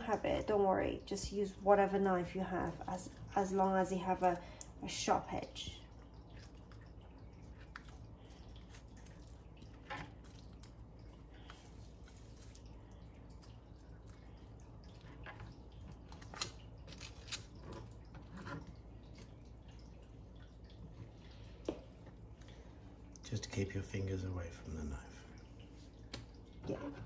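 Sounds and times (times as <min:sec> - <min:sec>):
wet squishing of meat: 0:01.9 - 0:23.3.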